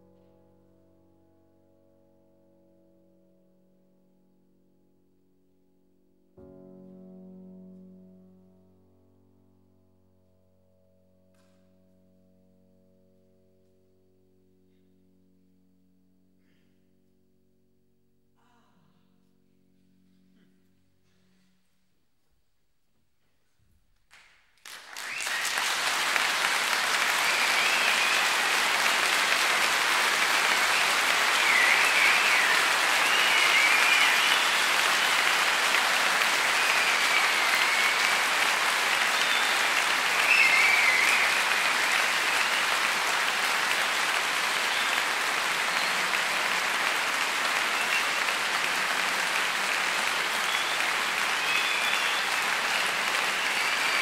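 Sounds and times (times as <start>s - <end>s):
audience applause: 24.1s - 54.0s
high wavering whistles: 30.6s - 35.1s, 39.0s - 41.8s.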